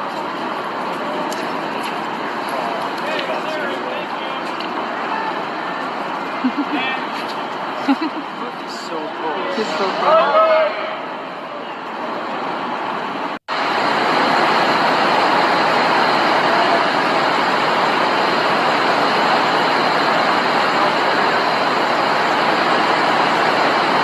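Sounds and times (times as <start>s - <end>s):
heavy rain hissing: 12.0s - 24.0s.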